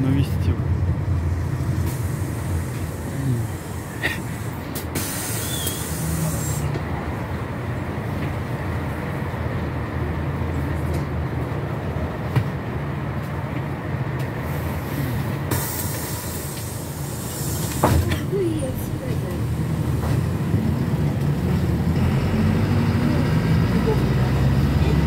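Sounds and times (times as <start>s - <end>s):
minibus engine idling: 0.0s - 25.0s
loud hiss: 1.8s - 6.7s, 15.5s - 18.0s.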